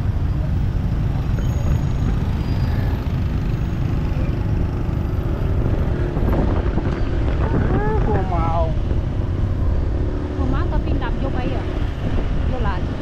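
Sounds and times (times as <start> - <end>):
scooter engines rumbling: 0.0 - 13.0
wind buffeting microphone: 4.5 - 13.0.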